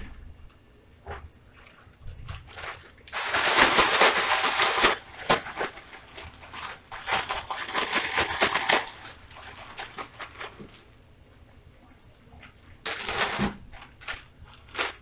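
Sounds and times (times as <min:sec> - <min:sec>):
plastic bag crinkling and rustling: 0:02.0 - 0:11.0, 0:12.8 - 0:15.0.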